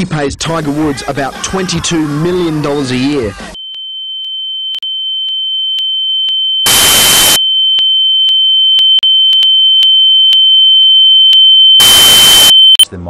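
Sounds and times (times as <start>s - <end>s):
high-pitched television test tone: 6.7s - 7.4s, 11.4s - 12.9s
tv static hiss: 6.7s - 7.4s.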